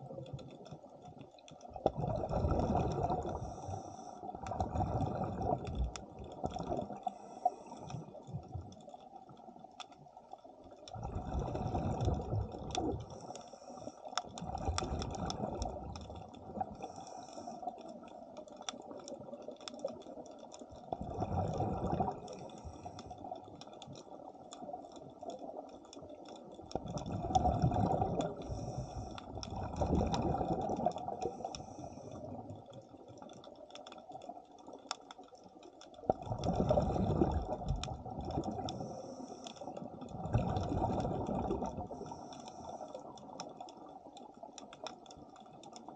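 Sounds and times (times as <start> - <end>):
underwater breath bubbling: 1.9 - 8.4, 10.9 - 17.9, 21.0 - 23.4, 26.7 - 32.5, 36.2 - 43.4.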